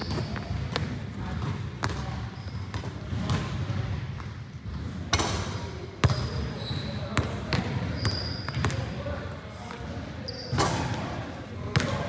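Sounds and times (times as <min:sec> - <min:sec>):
basketballs bouncing on gym floor: 0:00.0 - 0:09.1, 0:11.6 - 0:12.0.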